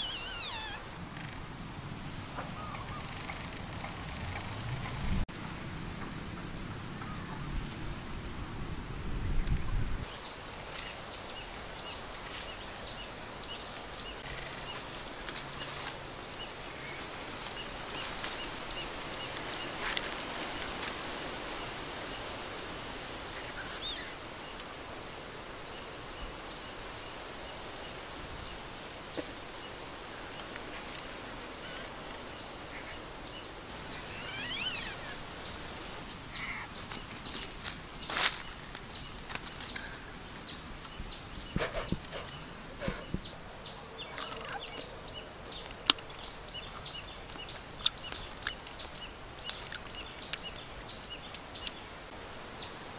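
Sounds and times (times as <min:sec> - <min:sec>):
falling bird calls: 0:00.0 - 0:01.6, 0:30.2 - 0:52.9
steady background hiss: 0:00.0 - 0:52.9.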